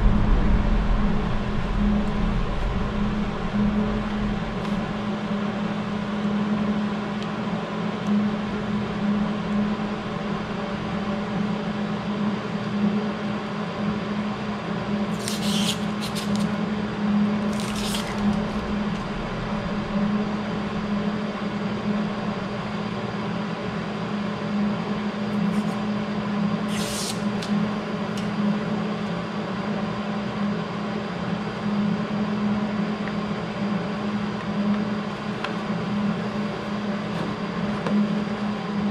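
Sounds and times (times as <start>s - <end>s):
steady machine hum: 0.0s - 38.9s.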